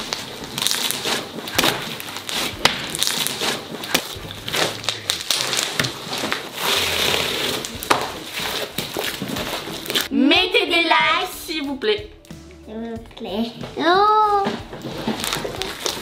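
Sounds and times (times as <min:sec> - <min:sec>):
slime crackling and popping: 0:00.0 - 0:10.1, 0:14.8 - 0:16.0.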